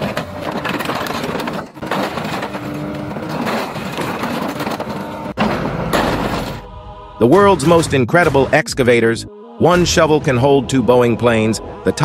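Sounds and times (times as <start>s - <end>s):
metal clanks and crunches: 0.0s - 6.7s.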